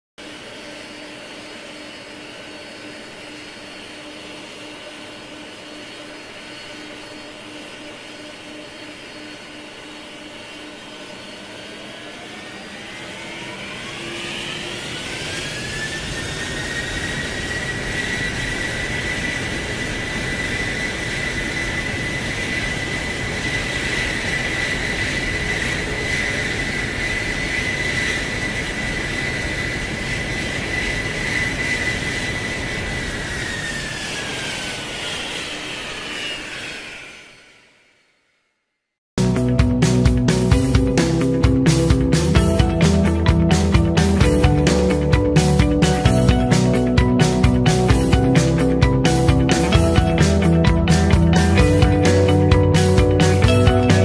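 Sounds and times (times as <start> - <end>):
jet engines whining: 0.2 - 38.4, 39.2 - 54.0
jet noise rush: 39.2 - 54.0.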